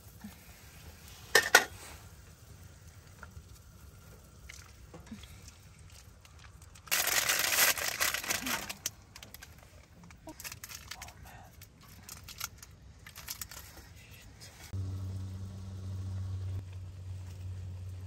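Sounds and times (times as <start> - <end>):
plastic packaging crinkling: 5.9 - 14.0.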